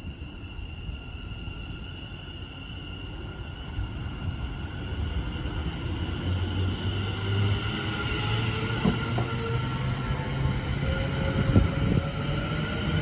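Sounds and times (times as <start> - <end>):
electric train whine: 0.0 - 13.0
wheels rumbling on rail: 5.1 - 13.0.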